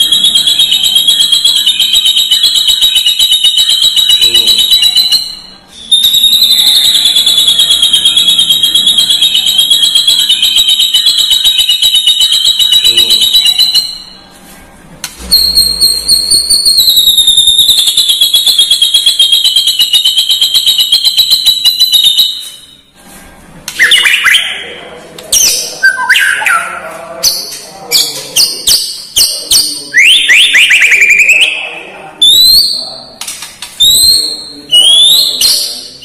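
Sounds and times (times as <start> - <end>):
songbird trilling and whistling: 15.3 - 19.1, 23.8 - 24.7, 25.4 - 33.0, 33.8 - 36.0.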